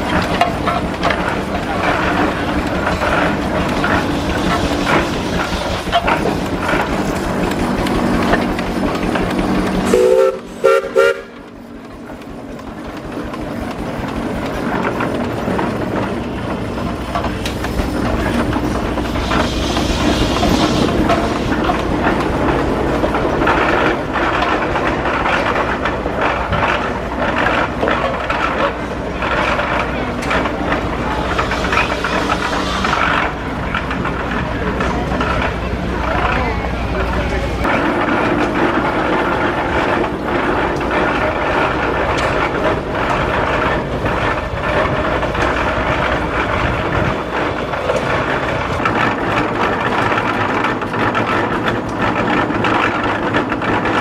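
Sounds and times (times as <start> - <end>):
steam engine running with clanks: 0.0 - 54.0
steam whistle blasts: 9.9 - 11.4.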